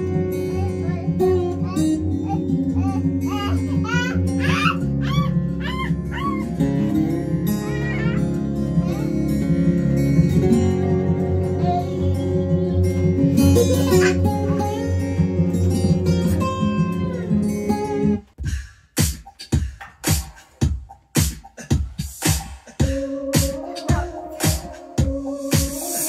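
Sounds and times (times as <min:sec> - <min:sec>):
plucked guitar music: 0:00.0 - 0:18.3.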